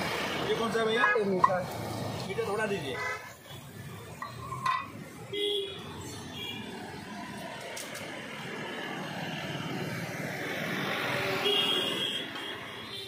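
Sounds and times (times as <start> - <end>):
vehicle passing: 5.9 - 11.4.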